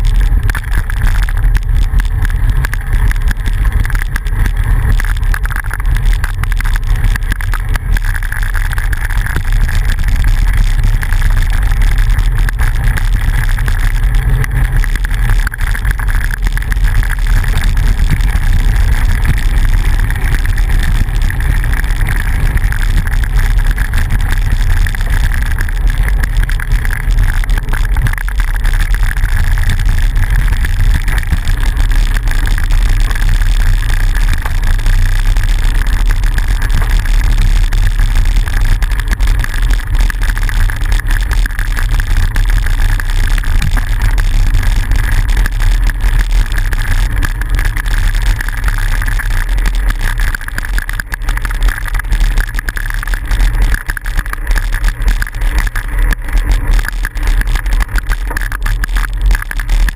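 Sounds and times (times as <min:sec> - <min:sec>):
wind rumble on microphone: 0:00.0 - 0:59.9.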